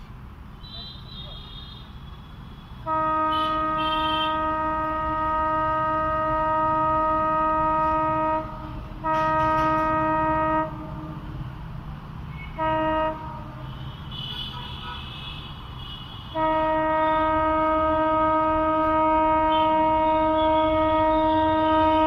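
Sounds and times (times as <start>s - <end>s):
locomotive air horn blasts: 2.7s - 11.2s, 12.3s - 22.0s
locomotive rumble: 2.8s - 13.7s, 16.3s - 22.0s.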